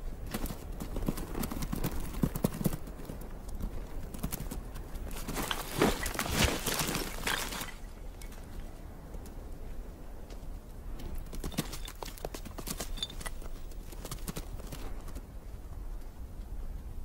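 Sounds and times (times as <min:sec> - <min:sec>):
hooves clattering on rock: 0:00.0 - 0:17.0
scuffling and loose stones: 0:00.3 - 0:09.3, 0:11.0 - 0:15.2.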